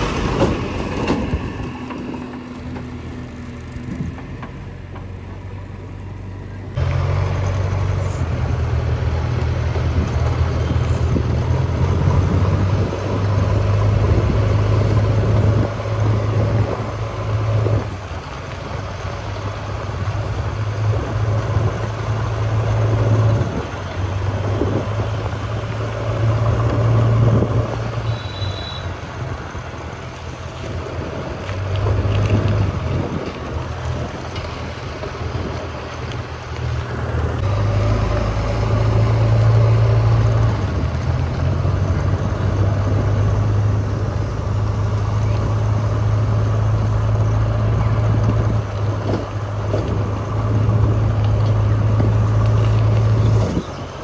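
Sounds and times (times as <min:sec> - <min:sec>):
diesel engine humming: 0:00.0 - 0:54.0.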